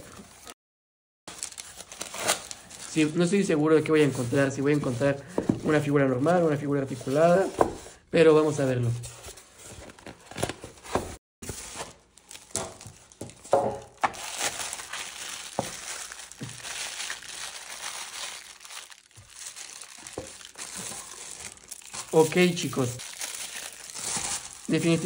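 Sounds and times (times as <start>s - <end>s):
plastic bags crinkling: 1.3s - 4.2s, 11.5s - 25.0s
styrofoam packing knocks: 10.9s - 16.8s.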